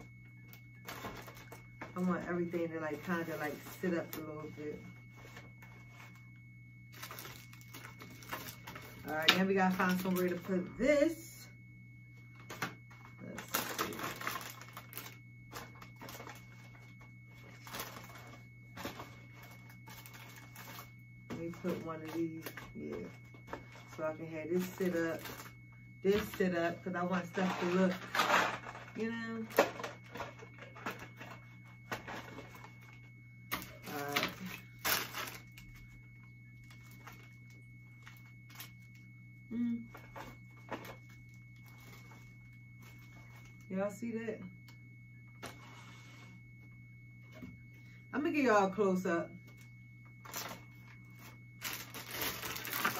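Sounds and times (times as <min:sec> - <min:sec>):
low electrical hum: 0:00.0 - 0:52.9
plastic packages rustling: 0:00.8 - 0:02.1, 0:06.9 - 0:10.6, 0:12.4 - 0:20.9, 0:21.5 - 0:25.6, 0:27.2 - 0:35.9, 0:50.2 - 0:52.9.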